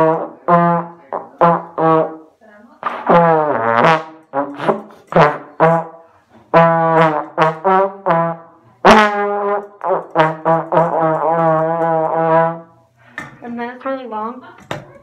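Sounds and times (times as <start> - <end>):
slide trombone playing: 0.0 - 13.0.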